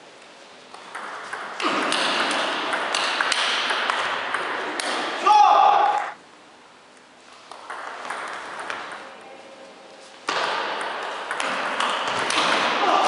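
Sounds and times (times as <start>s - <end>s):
table tennis ball clicking: 7.5s - 8.9s.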